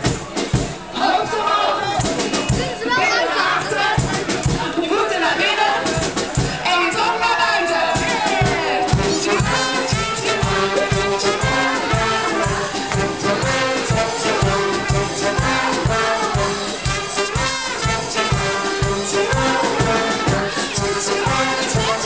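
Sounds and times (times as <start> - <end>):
steady drum beat: 0.0 - 22.0
trumpets: 0.3 - 22.0
trombone: 7.5 - 22.0
saxophone: 8.3 - 22.0.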